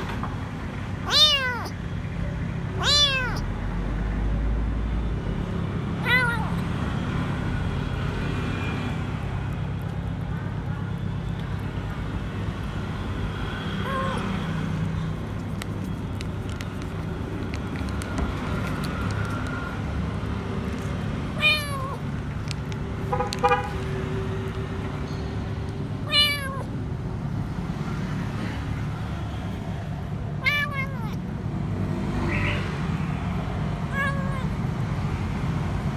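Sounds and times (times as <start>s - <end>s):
kitten meowing: 1.0s - 1.8s, 2.7s - 3.5s, 6.0s - 6.6s, 13.8s - 14.4s, 21.4s - 22.1s, 26.0s - 26.7s, 30.4s - 31.2s, 33.9s - 34.6s.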